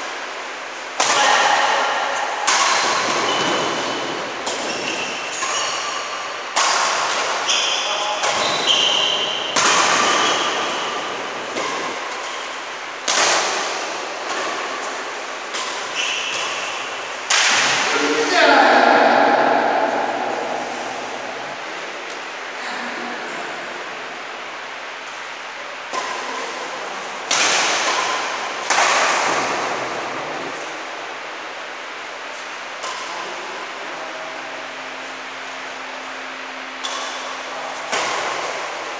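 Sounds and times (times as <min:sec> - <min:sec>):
rackets hitting shuttlecock: 0:01.0 - 0:18.0, 0:25.9 - 0:30.6, 0:36.7 - 0:38.8
shoes squeaking on court floor: 0:03.1 - 0:06.1, 0:15.9 - 0:16.9
player's voice: 0:17.9 - 0:21.7.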